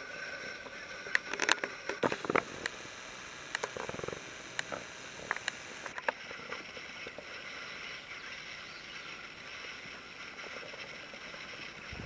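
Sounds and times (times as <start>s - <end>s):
light clicks: 2.0s - 6.0s
soft woodland hiss: 2.0s - 12.0s.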